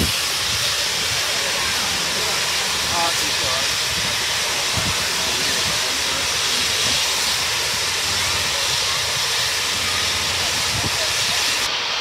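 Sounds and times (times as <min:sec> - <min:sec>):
steam hissing from locomotive: 0:00.0 - 0:12.0.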